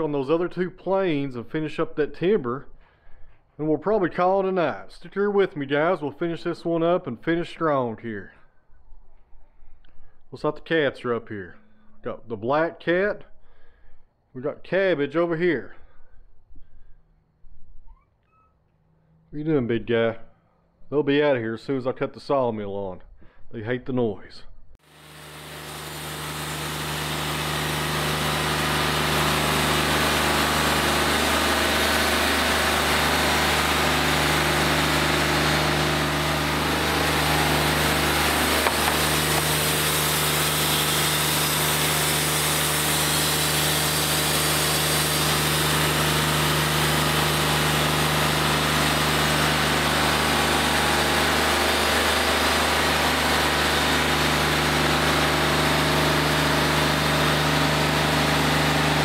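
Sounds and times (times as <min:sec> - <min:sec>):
sawmill engine and blade sawing: 0:24.8 - 0:59.0.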